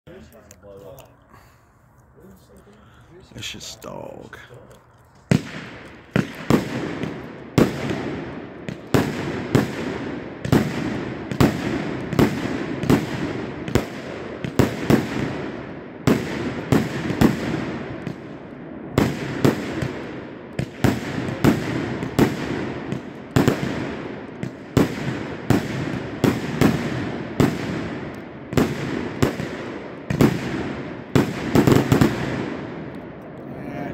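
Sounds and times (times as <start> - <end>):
rumbling echo: 2.7 - 23.0
fireworks cake bangs: 5.3 - 32.9.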